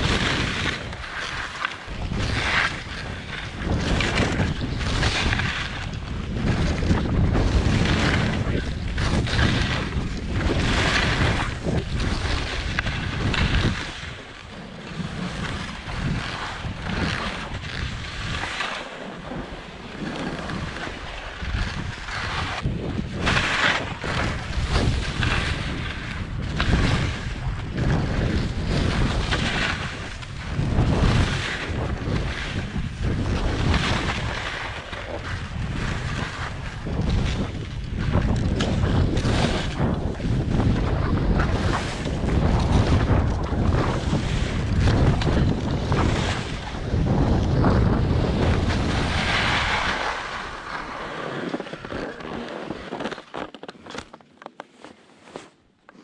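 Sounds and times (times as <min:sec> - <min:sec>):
wind on microphone: 0:00.0 - 0:54.1
skis sliding through snow: 0:00.0 - 0:56.0.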